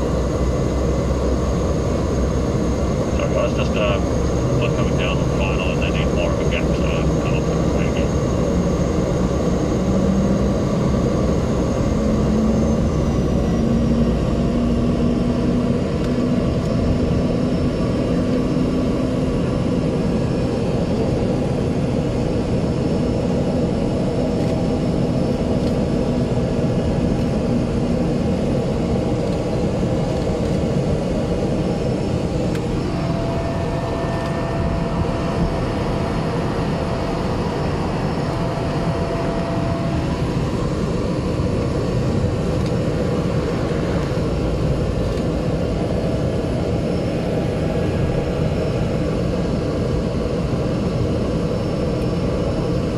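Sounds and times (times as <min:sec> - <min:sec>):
high engine whine: 0:00.0 - 0:52.9
propeller engine drone in cabin: 0:00.0 - 0:52.9.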